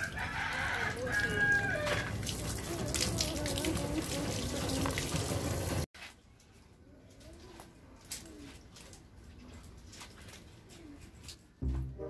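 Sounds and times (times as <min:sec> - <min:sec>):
water splashing on wet ground: 0:00.0 - 0:06.4, 0:07.6 - 0:12.0
hose water spraying: 0:01.0 - 0:05.9.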